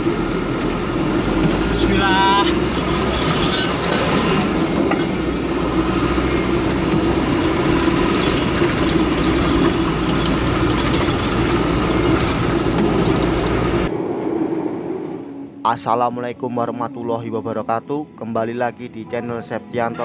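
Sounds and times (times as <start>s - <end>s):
train wheels rumbling on rails: 0.0s - 15.6s.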